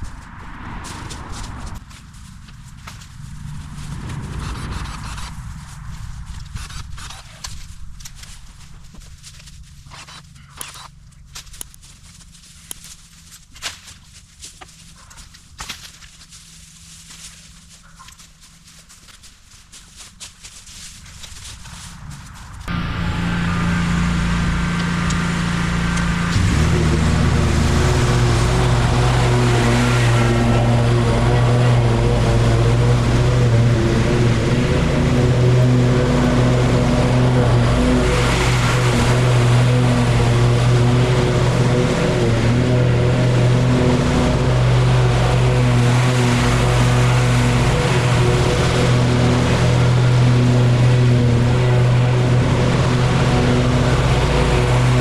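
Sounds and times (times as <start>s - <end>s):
small gasoline engine running: 22.7s - 55.0s.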